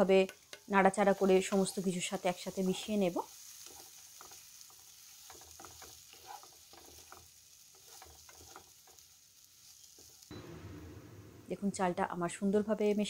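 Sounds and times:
oil sizzling: 0.0 - 13.0
spatula scraping rice in pan: 2.6 - 10.3.

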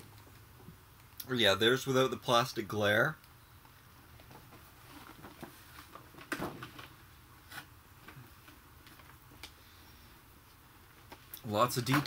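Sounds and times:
rustling of doll box: 4.2 - 9.2.

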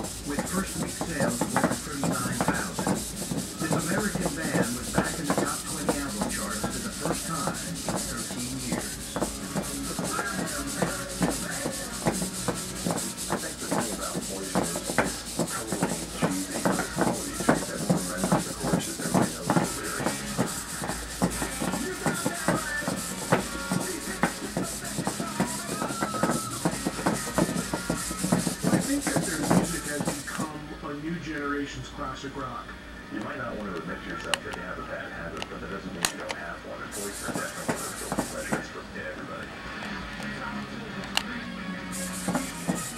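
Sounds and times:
robot feet tapping on wood: 0.0 - 30.4, 37.0 - 38.7, 42.0 - 42.9.

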